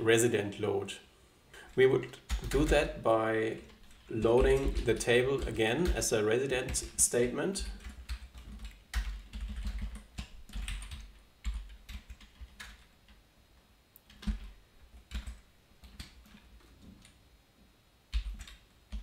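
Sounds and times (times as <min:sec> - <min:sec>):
computer keyboard typing: 0:01.7 - 0:13.2, 0:14.0 - 0:17.2, 0:18.1 - 0:19.0.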